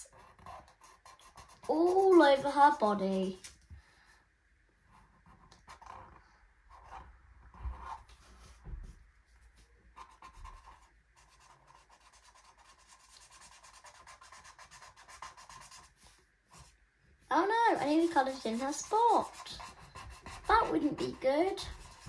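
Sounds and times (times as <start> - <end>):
marker scribbling on paper: 0.0 - 3.5, 10.0 - 16.7, 17.5 - 22.0.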